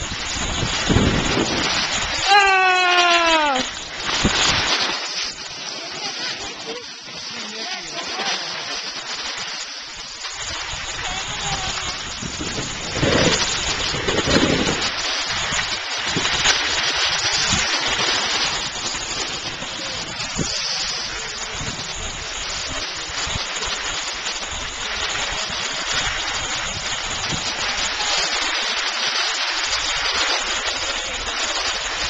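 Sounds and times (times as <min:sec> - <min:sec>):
wind buffeting microphone: 0:00.0 - 0:04.8, 0:09.9 - 0:23.7
skis sliding on snow: 0:00.0 - 0:32.0.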